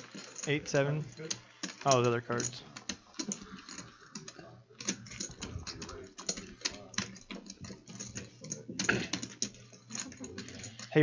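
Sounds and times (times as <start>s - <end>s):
faint voices: 0.9s - 9.3s.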